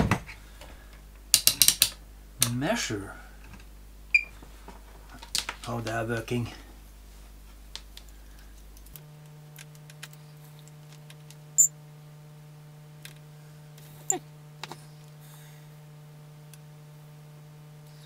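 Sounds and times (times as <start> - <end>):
steady low hum: 0.0 - 18.0
test probes clicking and tapping: 1.3 - 2.0.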